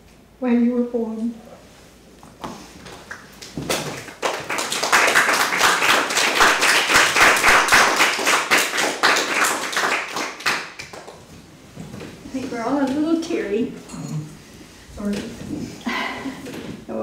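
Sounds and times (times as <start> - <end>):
audience applauding: 3.1 - 11.2.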